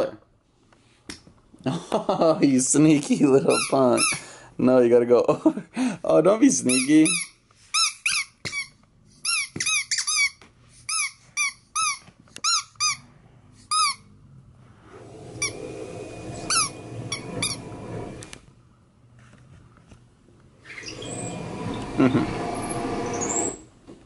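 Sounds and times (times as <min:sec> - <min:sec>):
squeaky dog toy: 0:03.5 - 0:04.2, 0:06.6 - 0:13.0, 0:13.7 - 0:14.1.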